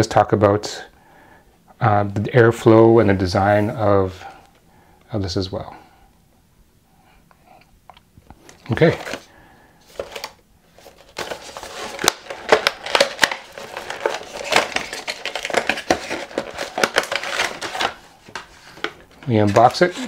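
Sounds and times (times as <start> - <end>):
cardboard rustling and scraping: 8.5 - 20.0.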